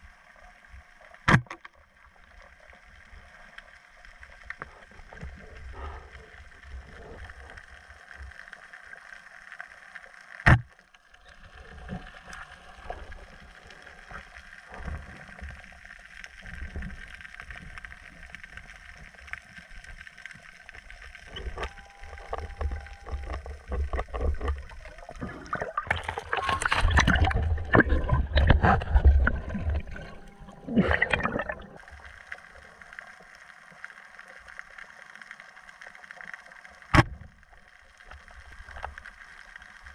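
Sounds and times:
water sloshing and gurgling: 10.2s - 33.7s
loud bubbling rush: 25.1s - 31.8s.

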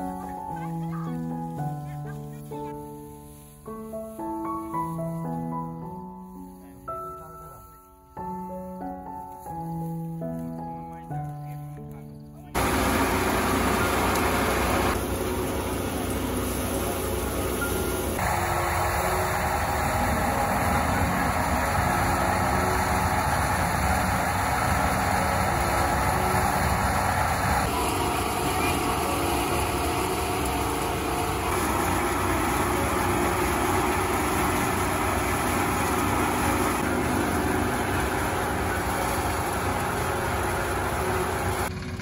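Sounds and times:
threshing machine drone: 12.6s - 42.0s.

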